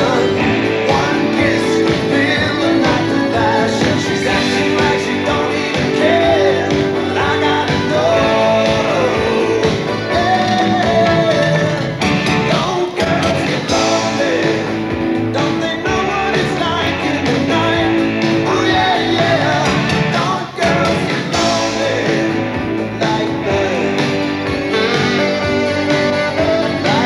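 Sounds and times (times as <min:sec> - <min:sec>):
guitar: 0:00.0 - 0:27.0
live band playing: 0:00.0 - 0:27.0
man singing: 0:00.0 - 0:27.0.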